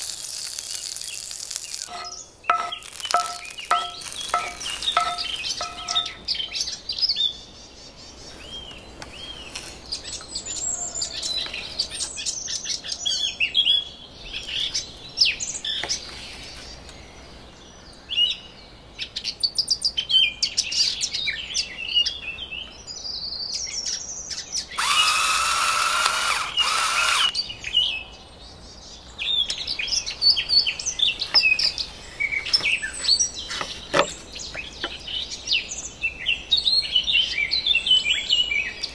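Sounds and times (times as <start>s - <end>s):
songbird singing: 0.0s - 38.9s
loud harsh buzzing: 1.4s - 6.2s, 24.8s - 27.3s.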